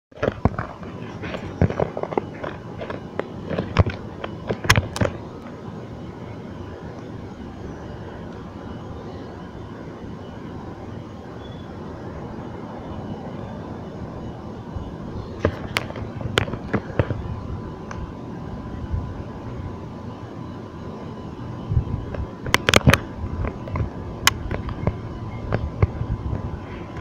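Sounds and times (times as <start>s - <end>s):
sharp clicks and pops: 0.1s - 5.5s, 15.4s - 17.2s, 22.1s - 27.0s
outdoor background rumble: 0.1s - 27.0s.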